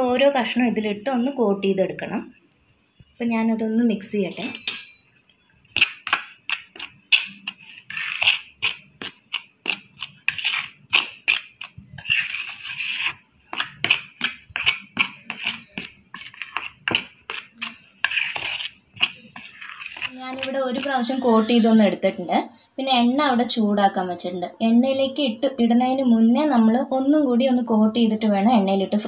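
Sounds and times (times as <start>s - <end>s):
metal spoon scraping steel plate: 4.4s - 5.1s, 6.4s - 21.7s.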